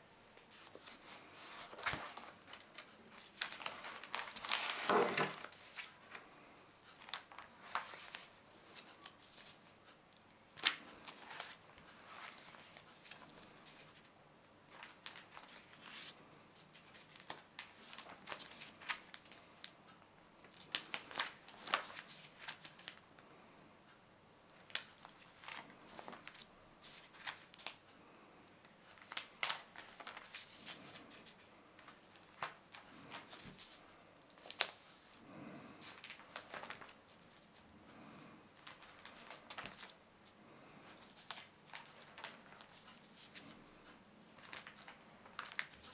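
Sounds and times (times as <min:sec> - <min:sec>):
plastic sleeve pages crinkling: 0:00.4 - 0:06.3, 0:06.9 - 0:09.7, 0:10.6 - 0:14.0, 0:14.7 - 0:19.7, 0:20.4 - 0:23.0, 0:24.6 - 0:27.8, 0:28.9 - 0:34.9, 0:35.8 - 0:37.7, 0:38.6 - 0:40.0, 0:40.9 - 0:43.6, 0:44.3 - 0:45.9.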